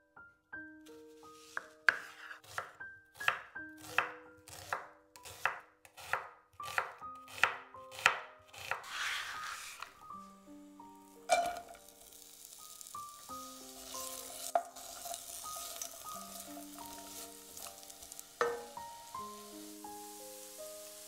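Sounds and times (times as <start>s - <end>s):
knife chopping on cutting board: 1.4s - 9.9s.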